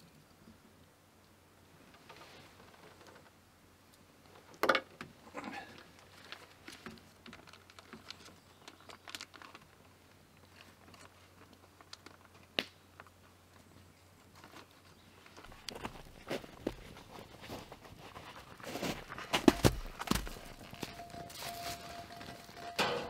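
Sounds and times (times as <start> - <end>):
plastic bag crinkling: 6.0 - 12.4, 18.5 - 22.7.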